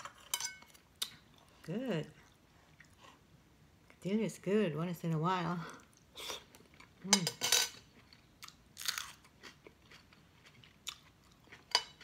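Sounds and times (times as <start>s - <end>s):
person chewing: 7.8s - 12.0s.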